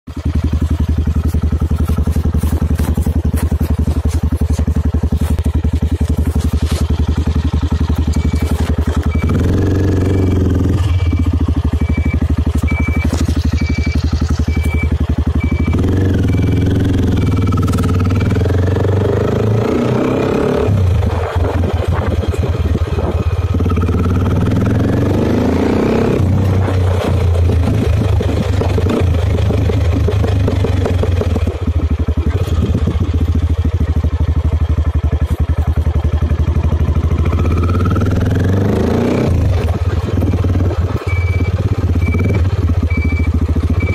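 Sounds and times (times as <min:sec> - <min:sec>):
single-cylinder motorcycle engine: 0:00.1 - 0:43.9
short high beep: 0:08.0 - 0:18.6, 0:41.0 - 0:43.9.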